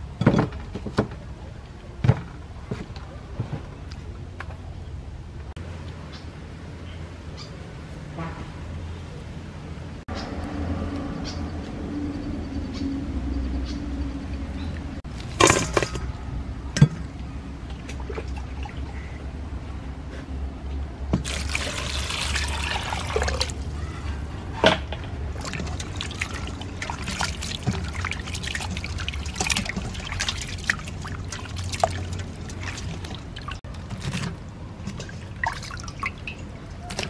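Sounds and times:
water splashing and trickling: 16.8 - 19.6, 21.2 - 37.0
water pouring: 21.2 - 23.8, 25.3 - 37.0.

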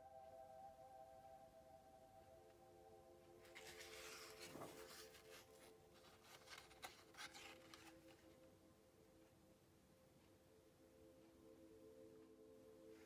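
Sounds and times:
calm background music: 0.0 - 13.0
page turning rustle: 3.5 - 8.3
paper crinkles and taps: 3.5 - 8.3.

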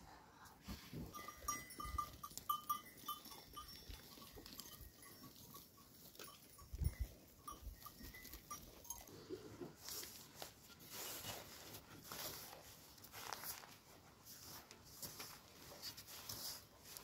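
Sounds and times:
livestock bells clinking: 1.0 - 10.2.

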